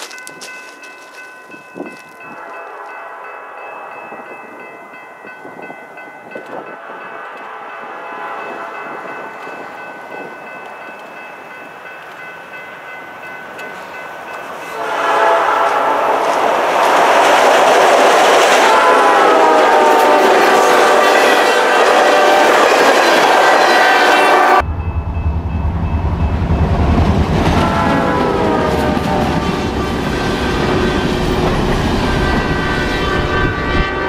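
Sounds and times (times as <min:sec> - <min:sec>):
locomotive air horn: 0:14.6 - 0:16.4, 0:18.6 - 0:24.6, 0:27.5 - 0:34.0.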